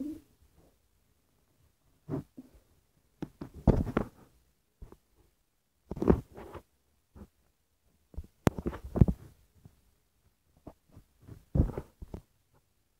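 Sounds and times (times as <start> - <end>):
phone handling thumps and rustling: 3.3 - 4.2.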